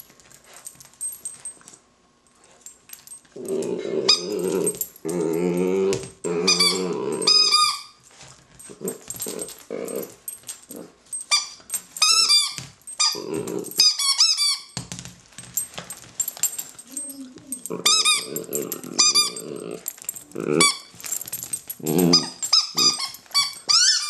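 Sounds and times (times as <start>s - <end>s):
puppy growling: 3.4s - 7.6s, 8.7s - 11.0s, 13.0s - 13.8s, 16.8s - 20.8s, 21.8s - 23.1s
squeaky toy squeaking: 6.5s - 8.0s, 13.8s - 14.8s, 22.2s - 24.0s.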